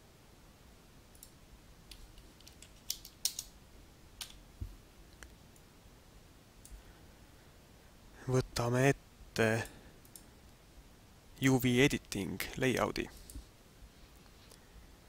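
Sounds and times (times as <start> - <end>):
mouse and keyboard clicks: 1.9 - 3.5.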